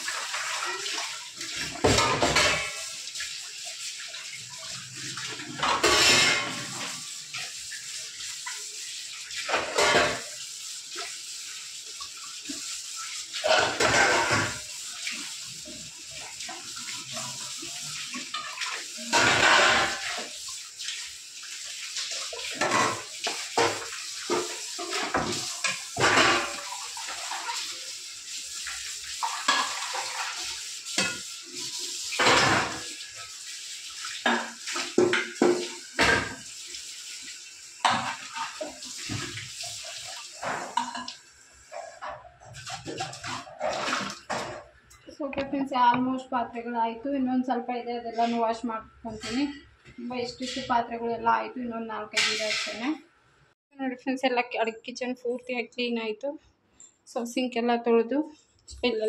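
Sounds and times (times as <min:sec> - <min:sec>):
tap water running into sink: 0:00.0 - 0:46.2
dishes clinking and clattering: 0:00.1 - 0:10.4, 0:12.0 - 0:20.5, 0:22.0 - 0:28.0, 0:28.6 - 0:33.2, 0:34.0 - 0:36.5, 0:37.8 - 0:45.6, 0:52.2 - 0:52.9.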